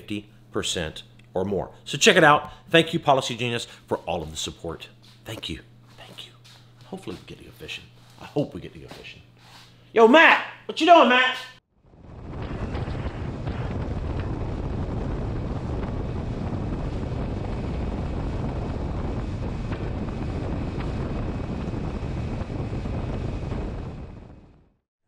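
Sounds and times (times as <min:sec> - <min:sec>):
wind buffeting microphone: 0:11.8 - 0:24.6.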